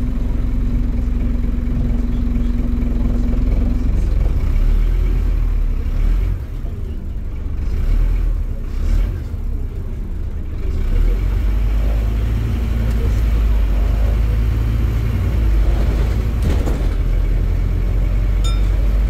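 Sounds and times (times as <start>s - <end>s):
bus engine and road rumble: 0.0s - 19.0s.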